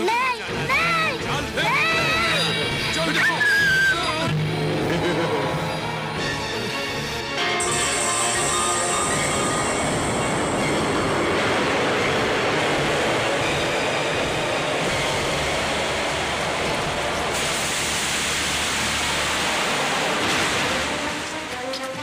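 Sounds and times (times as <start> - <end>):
dense fiery rushing noise: 9.2 - 21.5.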